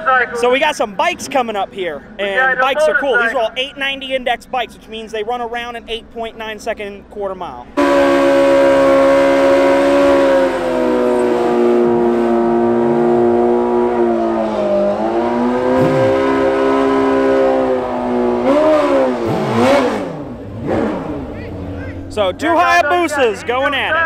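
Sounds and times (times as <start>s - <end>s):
motorcycle engines revving: 7.8s - 24.0s.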